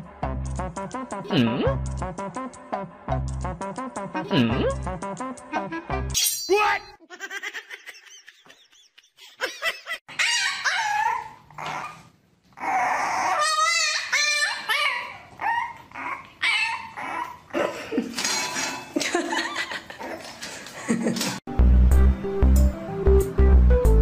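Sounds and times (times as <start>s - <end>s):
puppy whining and yipping: 10.1s - 17.6s.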